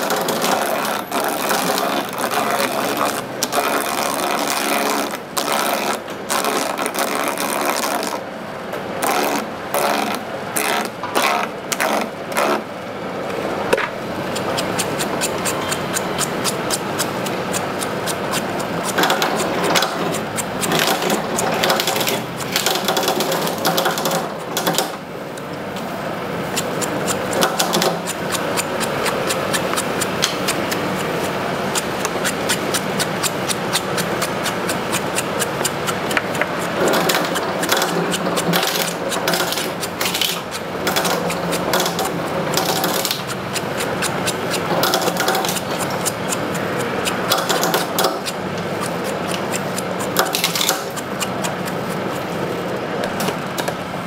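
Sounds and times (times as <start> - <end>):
mechanical clattering: 13.7 - 25.9, 26.5 - 52.1.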